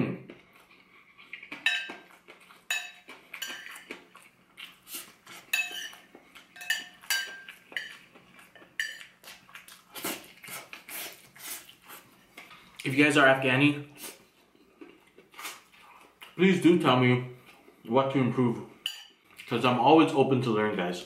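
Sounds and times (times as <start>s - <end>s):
metal spoon scraping ceramic plate: 5.5s - 6.0s.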